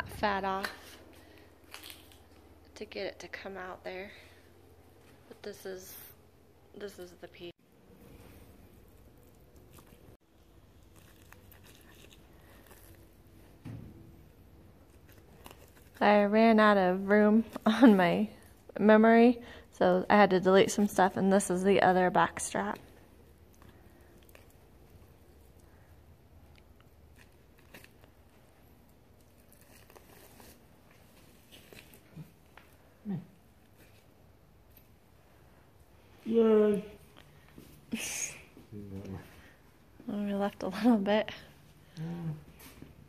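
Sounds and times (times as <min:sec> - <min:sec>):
low steady hum: 0:00.0 - 0:43.0.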